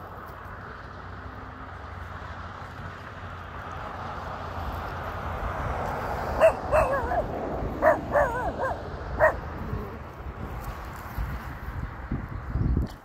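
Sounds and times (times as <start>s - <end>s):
dog yipping and whining: 6.4s - 10.0s.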